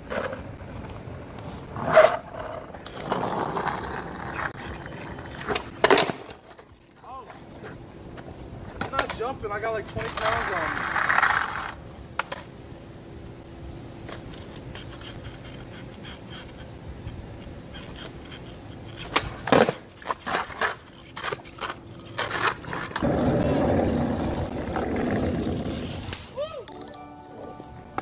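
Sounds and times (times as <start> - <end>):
skateboard clacking on road: 0.0 - 12.6, 17.5 - 26.2
skateboard wheels rolling on asphalt: 0.0 - 26.4.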